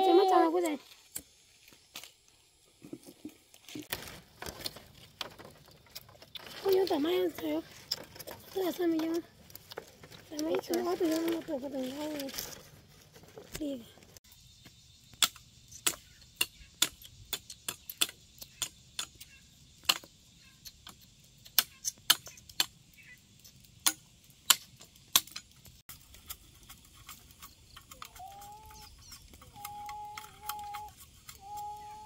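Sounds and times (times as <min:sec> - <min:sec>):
sharp irregular clicks and snaps: 0:05.8 - 0:12.4, 0:15.1 - 0:22.8, 0:23.4 - 0:31.9.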